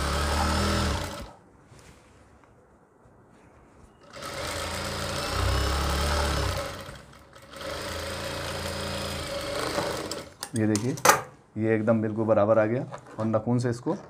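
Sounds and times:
sewing machine stitching: 0.0s - 1.4s, 4.0s - 10.4s.

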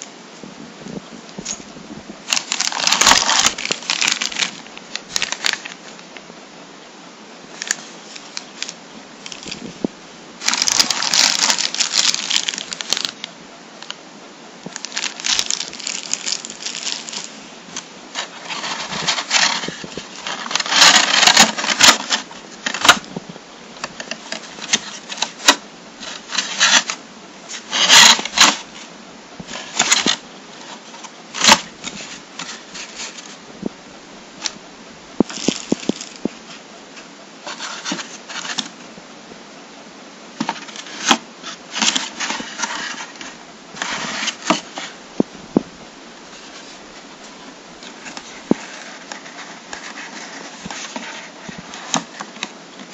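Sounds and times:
cardboard box handled: 2.2s - 5.8s, 7.6s - 13.2s, 14.7s - 17.4s, 18.1s - 23.1s, 35.2s - 36.6s
plastic bag crinkling: 2.2s - 6.0s, 7.5s - 14.0s, 14.6s - 23.1s, 23.8s - 28.8s, 29.5s - 33.4s, 35.2s - 36.6s.

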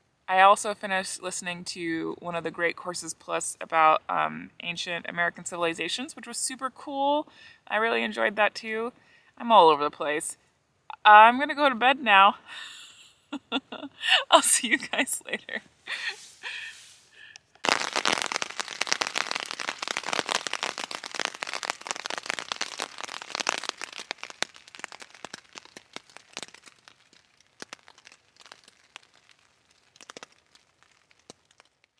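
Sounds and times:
crackling and popping: 13.4s - 31.9s.

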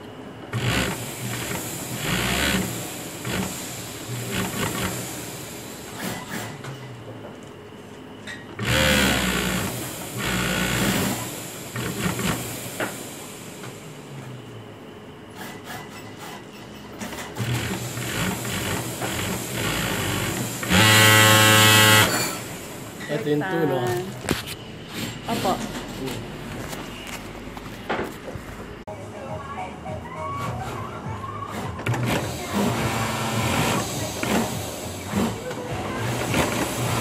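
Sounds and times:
sewing machine stitching: 0.5s - 5.0s, 8.6s - 12.5s, 17.0s - 22.4s.

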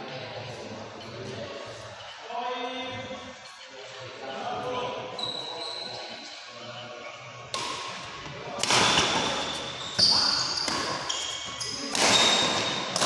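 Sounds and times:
racket striking shuttlecock: 11.9s - 13.0s.

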